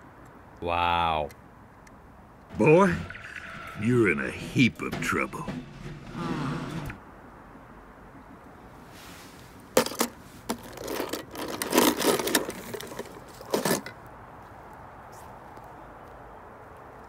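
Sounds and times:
toy cars clattering in plastic tub: 0:09.8 - 0:14.0.

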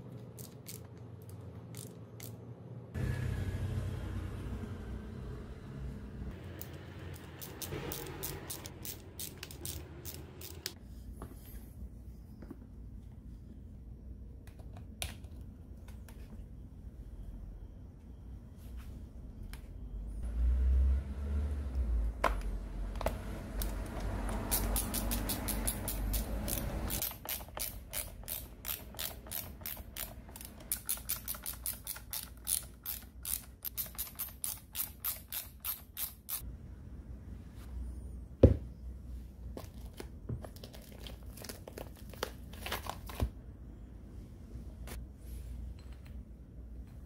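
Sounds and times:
ratcheting screwdriver clicking: 0:06.6 - 0:10.7, 0:24.5 - 0:36.4.

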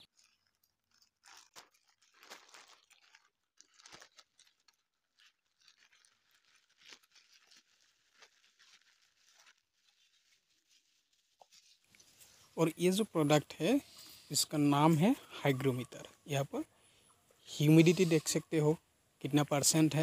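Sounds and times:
plastic bag and bubble wrap rustling: 0:00.0 - 0:16.7, 0:17.5 - 0:20.0
small crackles: 0:00.0 - 0:18.4.

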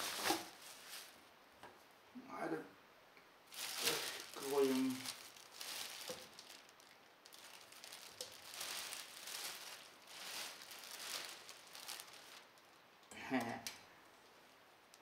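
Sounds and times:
plastic bag rustling: 0:00.0 - 0:01.2, 0:03.5 - 0:12.8.

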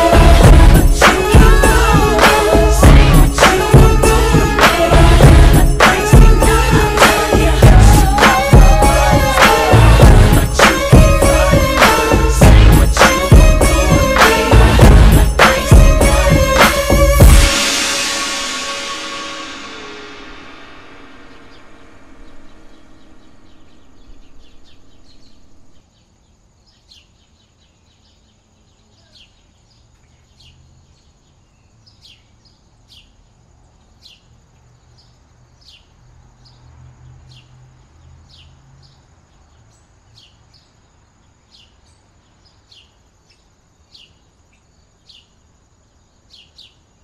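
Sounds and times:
music: 0:00.0 - 0:25.8
high insect drone: 0:00.0 - 0:47.0
faint low rumble: 0:18.4 - 0:25.9
bird chirps: 0:21.3 - 0:45.4, 0:46.0 - 0:47.0.

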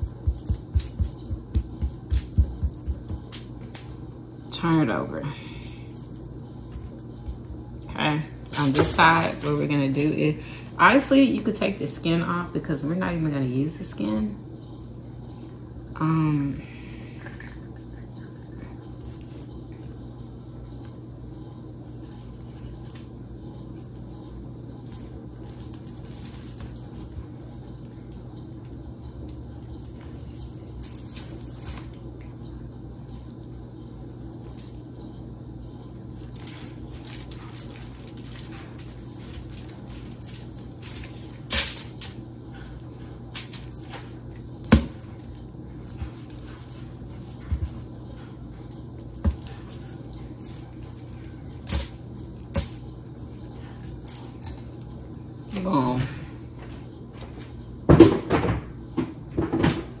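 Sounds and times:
steady low hum: 0:00.0 - 1:00.0
foil crinkling: 0:36.1 - 0:42.2.

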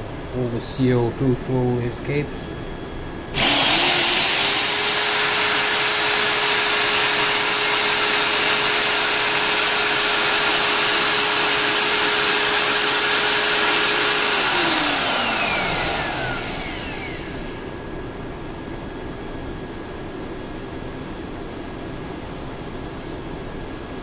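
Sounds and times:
electric drill mixer whining: 0:03.3 - 0:17.8.

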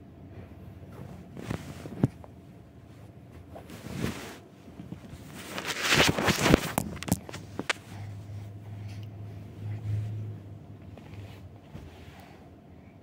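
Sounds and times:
rubbing and bumping: 0:03.3 - 0:08.0
phone handling rustling: 0:04.9 - 0:07.8.

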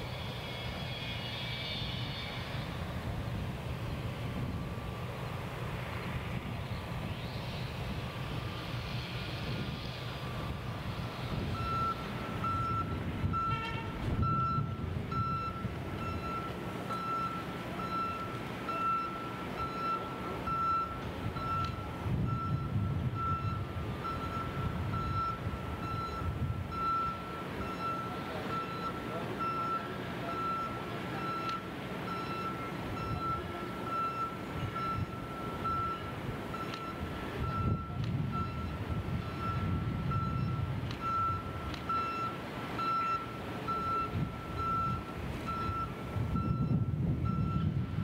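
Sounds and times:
diesel engine rumble: 0:00.0 - 0:48.0
backup alarm beeping: 0:11.5 - 0:47.8.

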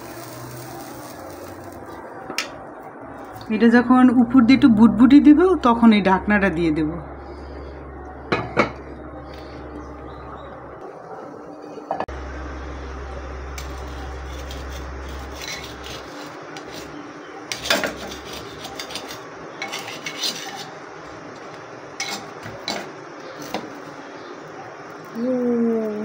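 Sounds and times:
knife scraping earthenware pan: 0:13.6 - 0:20.8, 0:22.0 - 0:23.7.

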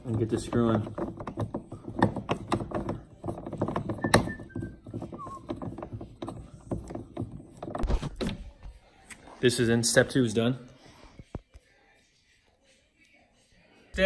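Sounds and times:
plastic knob clicking and knocking: 0:00.0 - 0:07.9.

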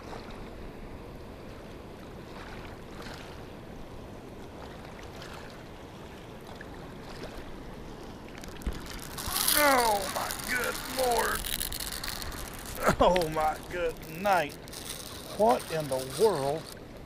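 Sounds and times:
fast river rushing: 0:08.6 - 0:16.8.

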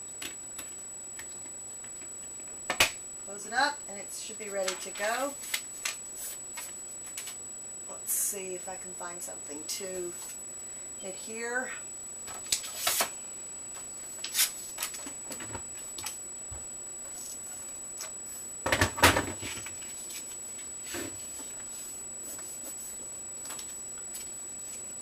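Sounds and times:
soft paper rubbing: 0:19.8 - 0:23.0.

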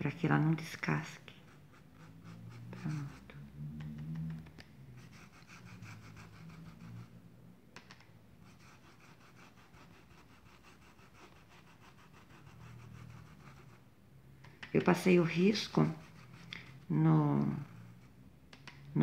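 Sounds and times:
paintbrush scratching on denim: 0:01.3 - 0:03.3, 0:05.0 - 0:07.1, 0:08.4 - 0:13.8, 0:15.4 - 0:16.8.

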